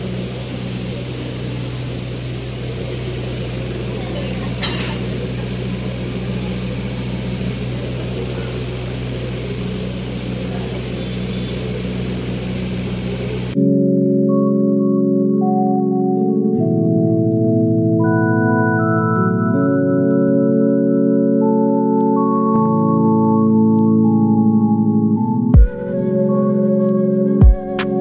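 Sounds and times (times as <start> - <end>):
machine hum: 0.0 - 13.6
faint murmuring voices: 0.1 - 13.6.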